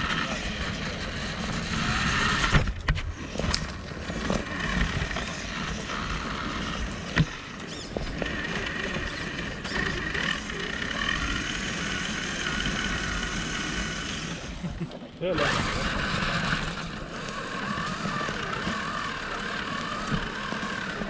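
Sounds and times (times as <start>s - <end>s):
electric motor and gears whining: 0.0s - 21.0s.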